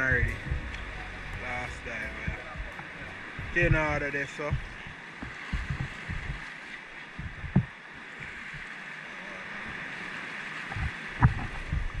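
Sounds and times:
sea water sloshing against rocks: 0.0s - 12.0s
wind rumble on microphone: 0.0s - 12.0s
dull knock: 4.5s - 6.4s.

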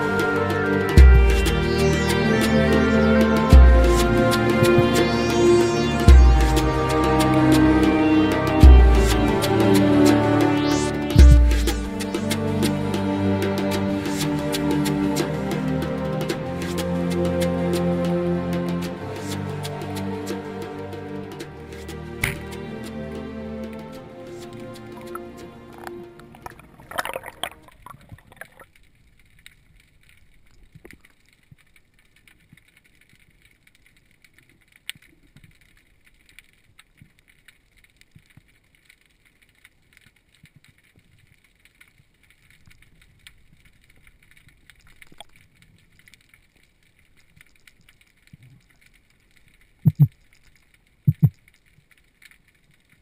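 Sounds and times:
dull low thumps: 1.0s - 1.7s, 6.1s - 6.8s, 8.6s - 9.4s, 11.2s - 12.0s, 49.9s - 50.1s
faint clicks: 23.6s - 53.0s.

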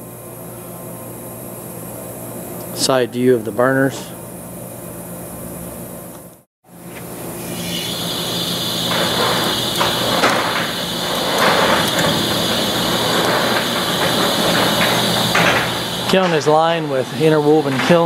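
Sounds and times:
loud machinery noise with hiss: 6.7s - 18.0s
clanks from turning drum: 8.8s - 18.0s.

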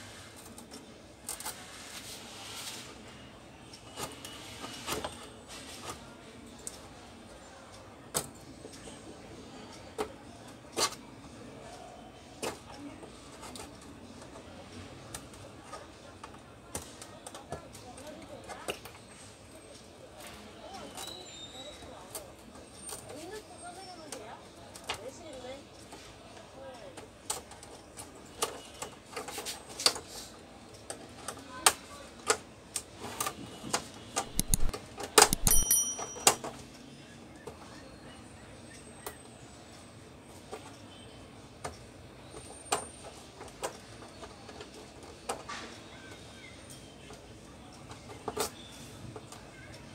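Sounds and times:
plastic and metal clicks and snaps: 34.2s - 35.7s
brief ringing tone: 35.3s - 36.4s.

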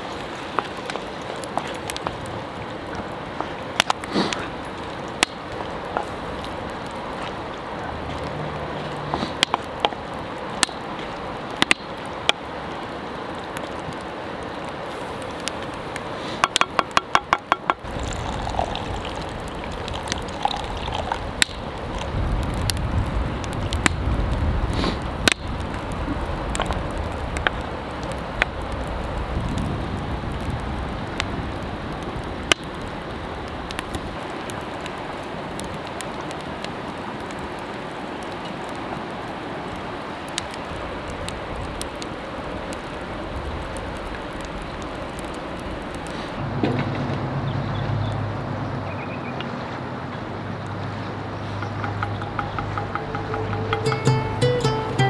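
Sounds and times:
crackling campfire: 0.0s - 55.0s
sharp clicks and knocks: 51.6s - 54.2s.

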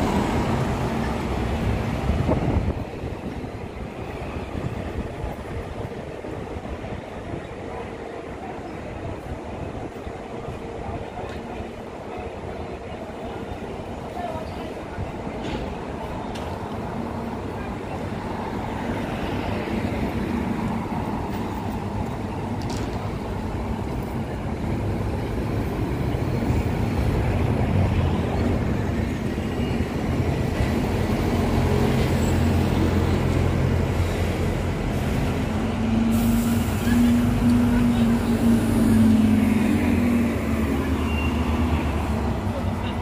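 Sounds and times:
bus engine humming: 0.0s - 43.0s
street traffic: 0.0s - 43.0s
people talking: 7.3s - 19.1s, 36.7s - 41.3s, 42.1s - 43.0s.

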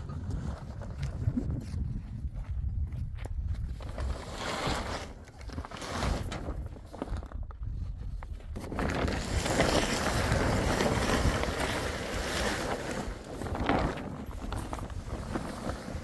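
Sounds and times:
gusty wind on microphone: 0.0s - 16.0s
plastic tarp rustling: 3.8s - 7.5s, 8.5s - 16.0s.

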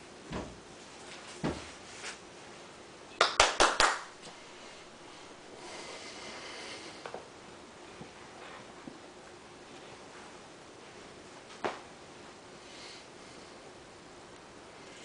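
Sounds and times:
sharp hand claps: 3.2s - 4.2s.

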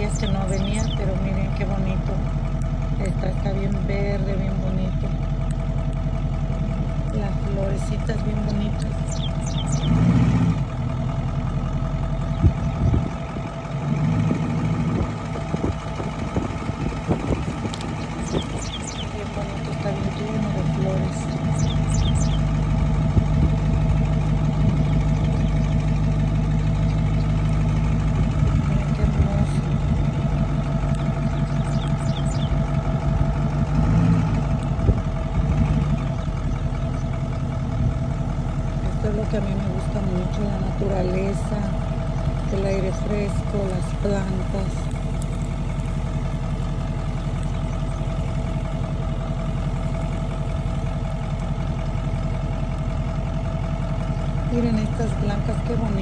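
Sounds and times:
engine idling: 0.0s - 56.0s
high falling chirps: 8.8s - 10.1s, 17.8s - 22.8s, 29.8s - 32.8s.

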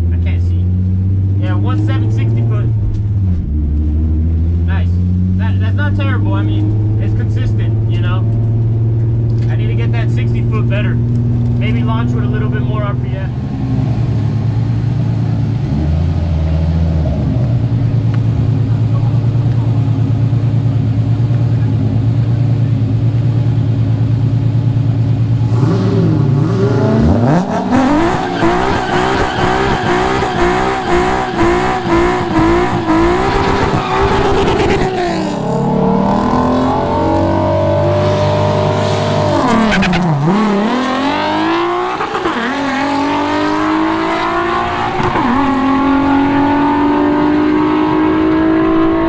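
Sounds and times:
car engine idling and revving: 0.0s - 49.0s
car accelerating hard: 0.6s - 49.0s
tyres spinning in a burnout: 25.4s - 36.1s.

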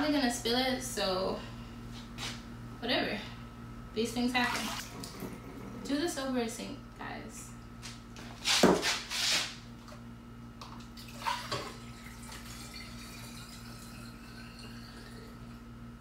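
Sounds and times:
faint steady hum: 0.0s - 8.5s, 9.5s - 16.0s
liquid pouring and splashing: 11.0s - 15.5s.

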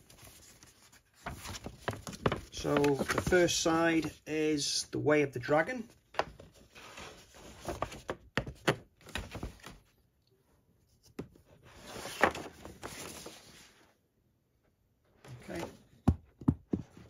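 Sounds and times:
paper rustling: 0.0s - 4.2s, 6.2s - 9.9s, 11.7s - 13.8s
paper poster crackling: 0.1s - 4.1s.

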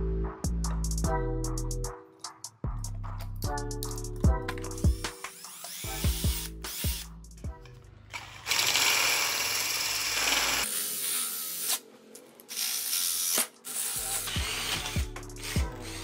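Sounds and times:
background music: 0.0s - 16.0s
drill hole saw grinding pipe: 5.2s - 7.0s, 8.1s - 11.8s, 12.5s - 16.0s.

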